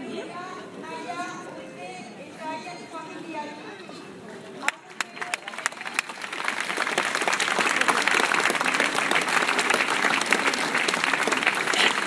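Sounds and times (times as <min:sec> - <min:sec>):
crowd applauding: 0:04.9 - 0:12.0.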